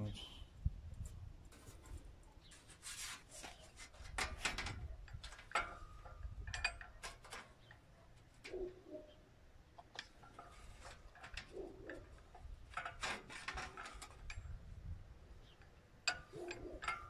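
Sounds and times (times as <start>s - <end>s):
sheet metal clicks and scrapes: 1.0s - 14.6s, 15.4s - 17.0s.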